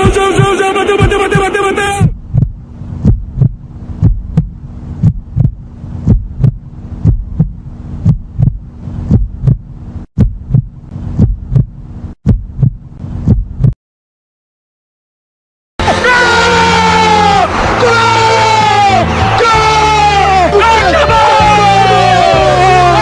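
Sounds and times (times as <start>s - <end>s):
heartbeat double thump: 0.0s - 13.8s
low steady hum: 0.1s - 13.8s.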